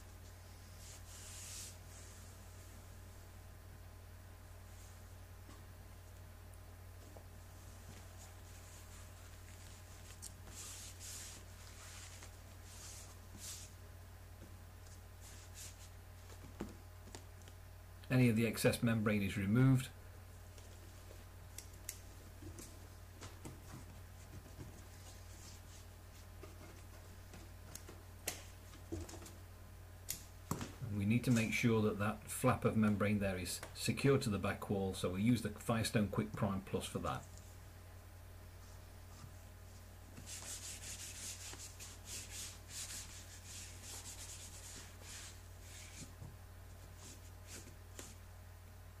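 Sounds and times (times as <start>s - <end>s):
low steady hum: 0.0s - 49.0s
rubber membrane scratching: 8.5s - 13.7s, 40.1s - 46.1s.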